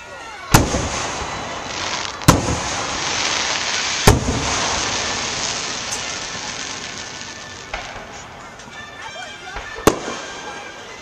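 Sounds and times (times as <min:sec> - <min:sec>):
fireworks booming: 0:00.5 - 0:08.7, 0:09.6 - 0:10.7
fireworks hiss: 0:00.6 - 0:08.3.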